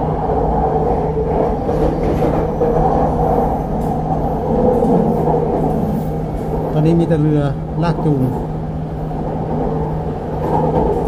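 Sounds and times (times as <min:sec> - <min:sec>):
metro train rumbling: 0:00.0 - 0:11.0.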